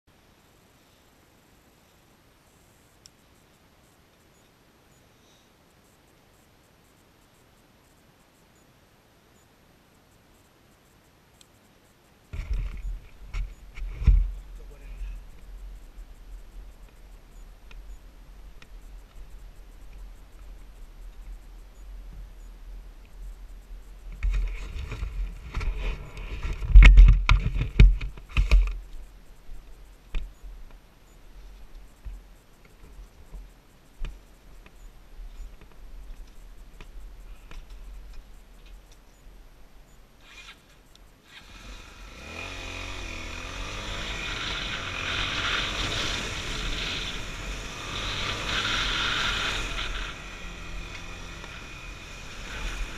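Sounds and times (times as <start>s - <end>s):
knocks and scrapes of motorcycle: 12.3s - 14.5s, 24.2s - 28.8s
motorcycle engine starting and running: 12.4s - 15.4s, 41.3s - 52.9s.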